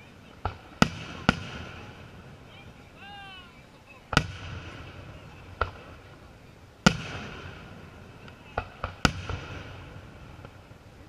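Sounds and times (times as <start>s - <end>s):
low rumbling echo: 0.0s - 11.0s
firework shells bursting: 4.1s - 11.0s.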